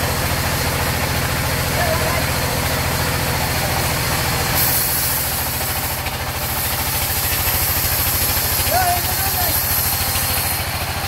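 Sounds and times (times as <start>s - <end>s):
sawmill engine running: 0.0s - 11.0s
saw blade hissing through log: 4.3s - 11.0s.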